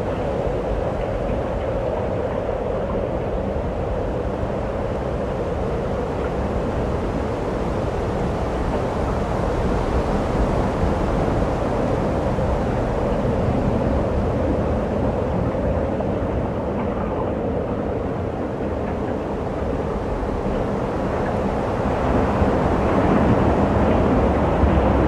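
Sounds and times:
strong wind blowing: 0.0s - 25.0s.

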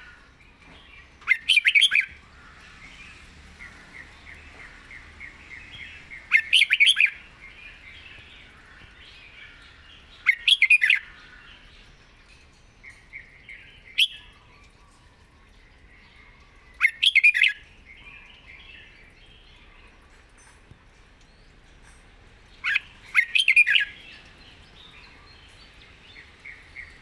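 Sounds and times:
faint bird twittering: 1.0s - 20.1s, 22.6s - 27.0s
bird singing whistled phrases: 1.3s - 2.1s, 6.3s - 7.2s, 13.9s - 14.6s, 16.8s - 17.6s, 22.6s - 24.0s.

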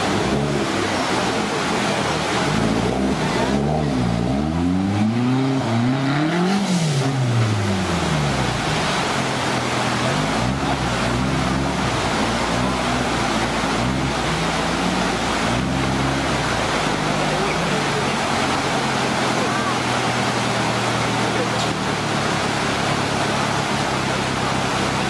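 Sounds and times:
fast-flowing water rushing: 0.0s - 25.0s
truck engine revving: 0.0s - 25.0s.

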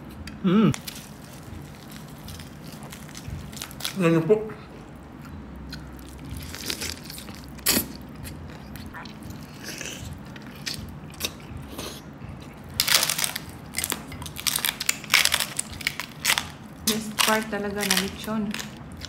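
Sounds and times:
crunching bites into crispy skin: 12.7s - 19.0s.

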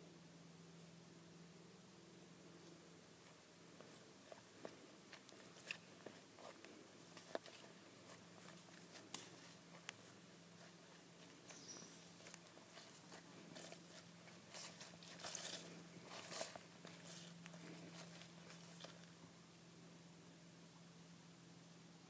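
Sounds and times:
low steady hum: 0.0s - 22.0s
footsteps through long grass: 2.6s - 19.4s.

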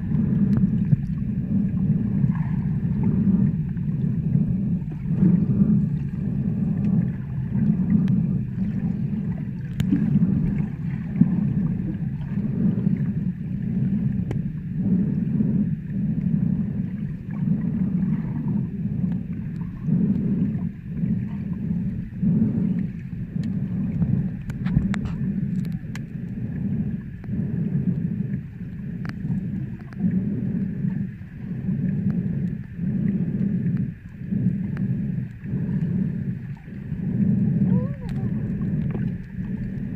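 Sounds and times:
underwater water rumble: 0.0s - 39.9s
faint clicks: 0.1s - 1.8s, 6.7s - 8.6s, 9.6s - 10.6s, 14.1s - 14.5s, 19.0s - 20.2s, 22.8s - 26.4s, 27.0s - 31.2s, 31.8s - 32.8s.

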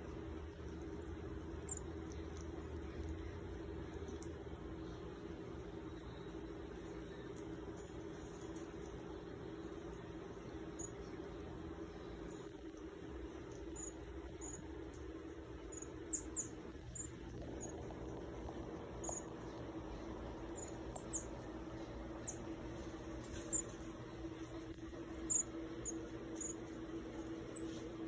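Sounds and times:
steady low hum: 0.0s - 28.0s
marmoset chirping: 1.6s - 2.2s, 10.7s - 11.0s, 13.6s - 14.7s, 15.6s - 17.8s, 19.0s - 19.6s, 20.5s - 21.5s, 22.2s - 22.6s, 23.4s - 23.8s, 25.2s - 26.7s.

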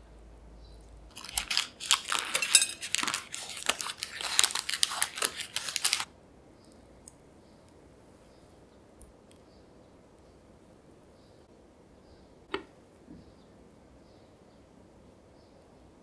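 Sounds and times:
paper muffin cup crinkling: 1.1s - 6.1s.

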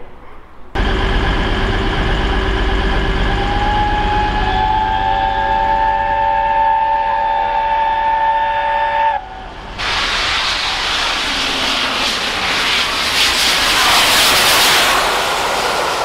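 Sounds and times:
train approaching at speed: 0.0s - 16.0s
steam locomotive whistle: 2.2s - 9.5s.

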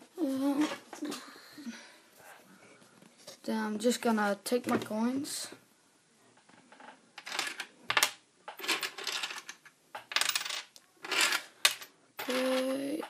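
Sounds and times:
coins clinking and jingling: 8.6s - 9.5s.

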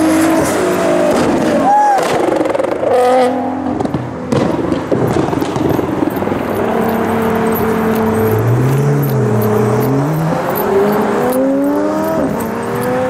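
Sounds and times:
engine revving: 0.0s - 13.0s
sports car engines passing: 0.0s - 13.0s.

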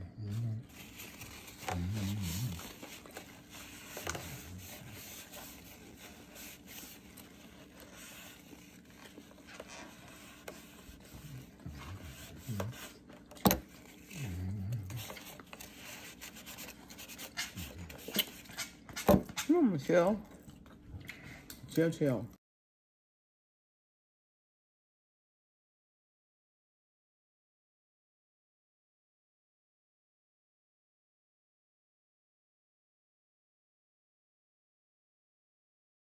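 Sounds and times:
plastic container scraping: 0.7s - 14.3s.

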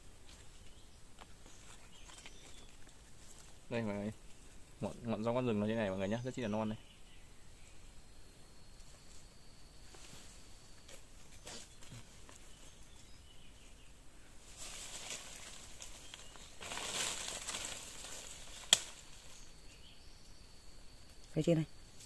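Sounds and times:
leaves and branches rustling: 0.0s - 22.0s
sharp snap: 18.6s - 19.0s.

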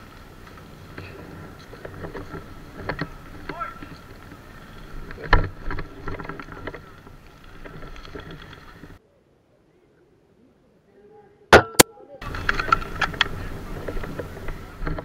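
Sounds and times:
camera handling rustle: 12.3s - 15.0s.

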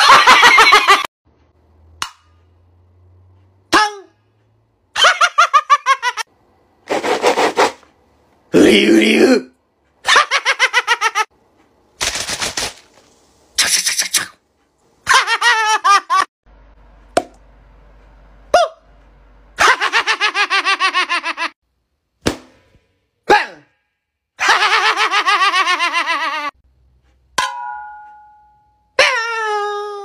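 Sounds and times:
high-pitched staccato laughter: 19.6s - 21.6s, 24.4s - 26.6s.

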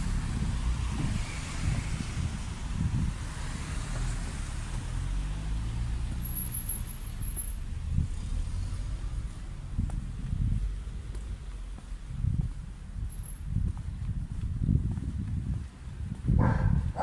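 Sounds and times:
car traffic rumble: 0.0s - 17.0s
engine hum: 0.0s - 17.0s
soft low thumps: 9.0s - 17.0s.

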